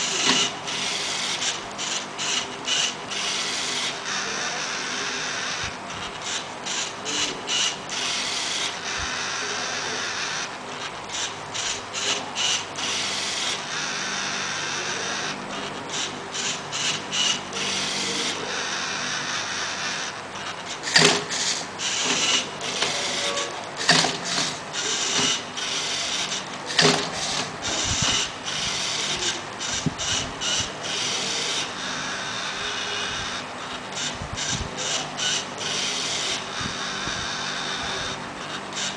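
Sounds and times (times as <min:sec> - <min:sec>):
robot motors whirring: 0:00.0 - 0:38.9
sharp plastic clacks: 0:23.7 - 0:25.4, 0:26.6 - 0:28.3.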